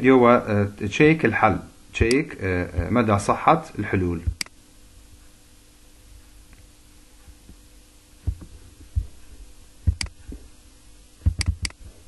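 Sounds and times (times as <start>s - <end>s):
steady low hum: 0.0s - 12.0s
computer mouse clicks: 9.9s - 10.2s, 11.3s - 11.8s.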